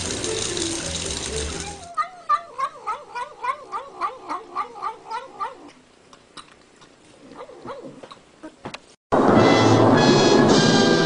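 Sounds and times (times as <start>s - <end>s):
cat yowling: 1.6s - 5.8s.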